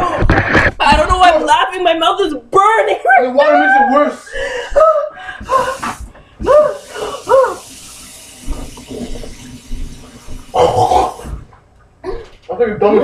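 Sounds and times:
water running from a tap: 5.4s - 11.4s
person howling: 6.4s - 7.6s.

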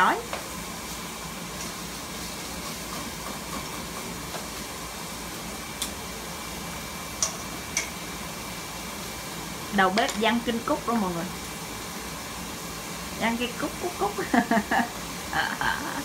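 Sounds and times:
food sizzling in a frying pan: 0.0s - 16.0s
chopsticks stirring food: 1.6s - 4.7s.

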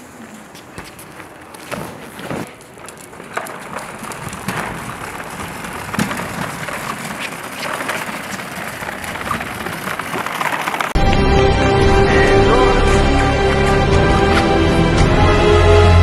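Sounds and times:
casters rolling on concrete: 0.2s - 11.2s.

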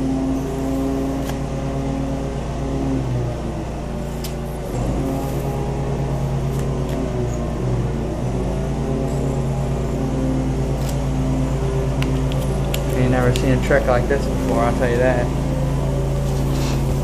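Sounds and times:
low machine hum: 0.0s - 17.0s
playing cards clicking: 1.2s - 1.4s, 12.0s - 13.5s.

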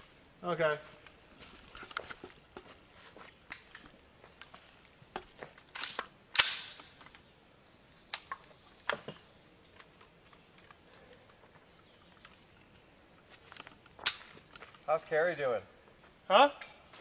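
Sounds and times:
faint sharp cracks: 5.5s - 7.2s.

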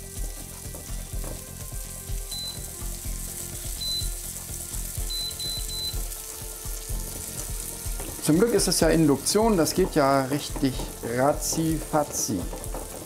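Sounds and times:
egg sizzling on griddle: 0.0s - 13.0s
spatula scraping griddle: 7.2s - 13.0s.

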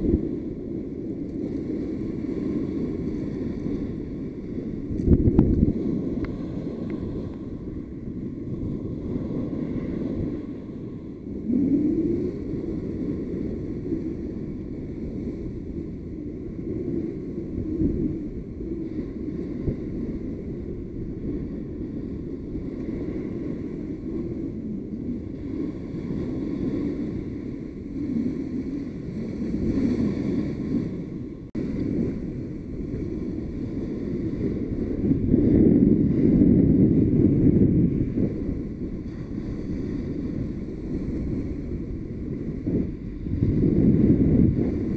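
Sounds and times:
wind rumbling on microphone: 0.0s - 44.9s
small waves breaking: 18.7s - 35.3s.

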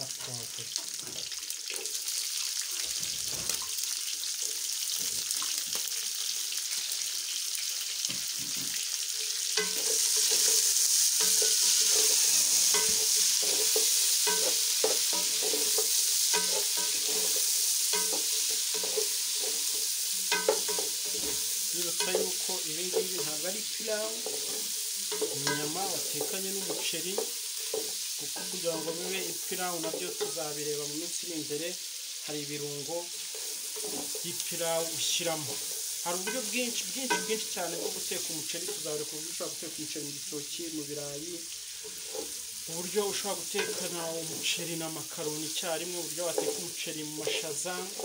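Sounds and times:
meat and vegetables sizzling in a pot: 0.0s - 48.0s
wooden spoon scraping a pot: 9.6s - 30.4s, 33.1s - 38.9s, 41.8s - 42.4s.

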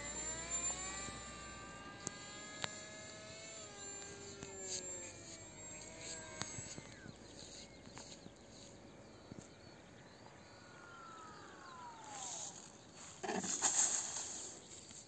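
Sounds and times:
electric motor whine: 0.0s - 15.0s
hiss skimming grass: 12.2s - 14.6s.

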